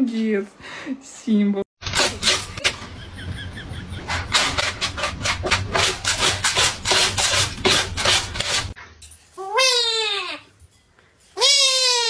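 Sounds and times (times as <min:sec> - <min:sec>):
cat scratching in litter box: 0:01.8 - 0:02.8, 0:04.1 - 0:08.8.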